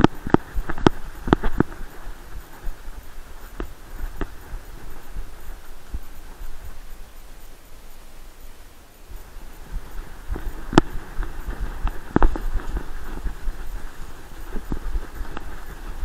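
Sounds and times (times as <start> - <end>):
dog paws on dry leaves: 0.0 - 7.0, 9.2 - 16.0
low rumble of movement: 0.0 - 7.4, 9.1 - 16.0.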